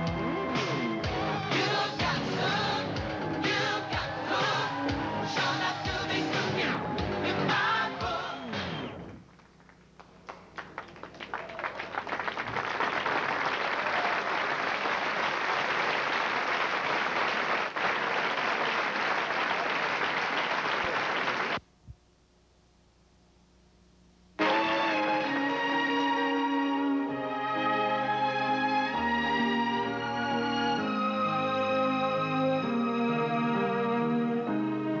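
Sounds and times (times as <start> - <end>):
audience applause: 9.3 - 21.6.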